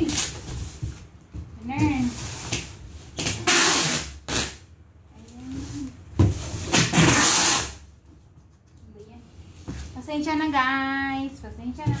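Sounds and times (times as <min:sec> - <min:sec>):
packing tape pulled off roll: 0:02.2 - 0:04.7, 0:06.6 - 0:07.8.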